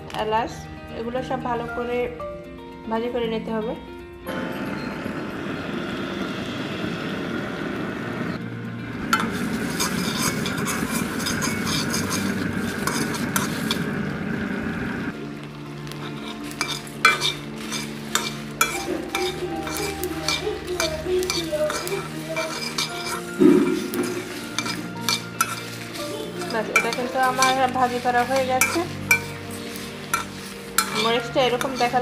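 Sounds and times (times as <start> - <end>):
spices frying: 4.4 - 32.0
metal spoon scraping a pan: 9.1 - 13.9, 15.8 - 32.0
syrup simmering and bubbling: 9.2 - 20.6.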